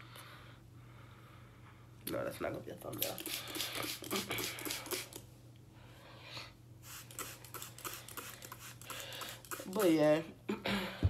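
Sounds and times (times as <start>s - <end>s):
spray bottle squirts: 3.0s - 5.2s, 6.9s - 9.9s.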